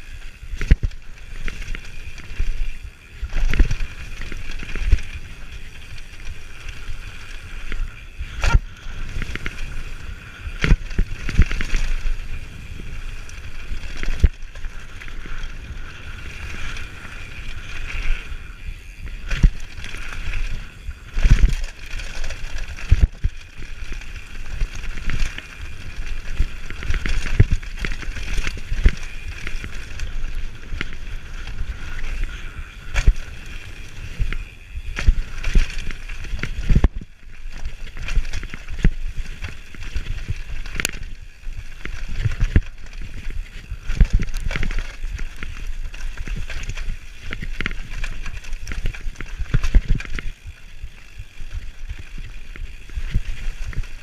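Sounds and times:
bike tyres on dirt trail: 0.0 - 54.0
bike knocks and rattles: 0.4 - 54.0.

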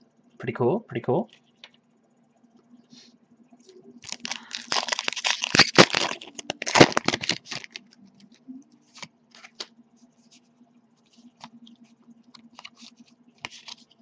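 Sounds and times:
foil wrapper crinkling: 4.0 - 8.0, 12.4 - 14.0.

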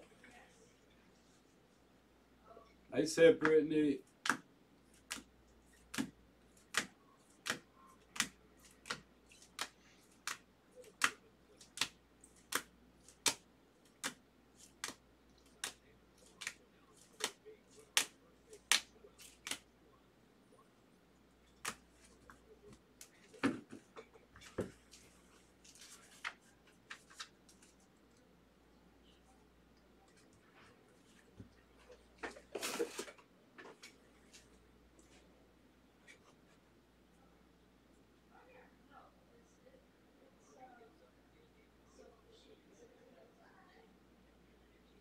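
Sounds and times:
card stack handling: 5.0 - 13.4, 14.0 - 19.6.

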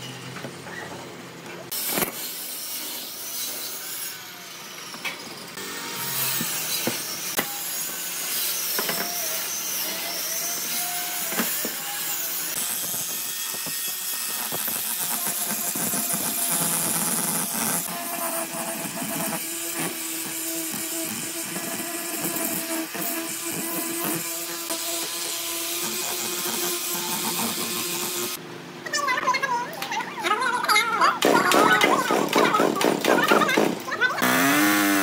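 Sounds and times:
angle grinder sanding wood: 5.6 - 28.4, 34.2 - 35.0.

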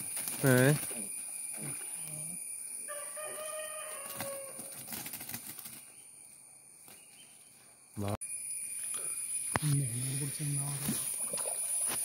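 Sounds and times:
high insect buzz: 0.0 - 12.0
rooster crowing: 2.8 - 4.8.

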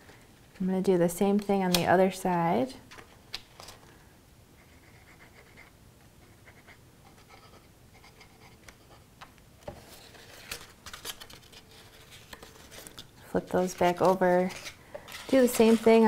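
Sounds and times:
paper rustling and scraping: 9.6 - 16.0.

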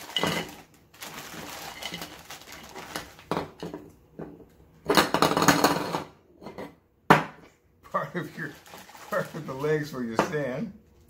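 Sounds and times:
plastic bag rustling: 0.0 - 3.6, 8.0 - 10.2.

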